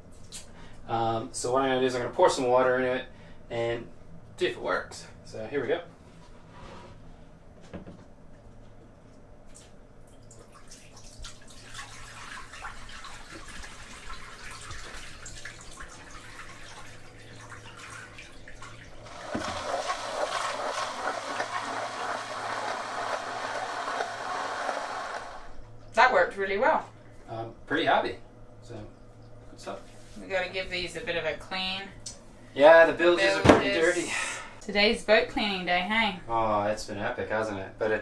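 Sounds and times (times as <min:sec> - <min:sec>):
water splashing into bilge: 0:09.5 - 0:24.1.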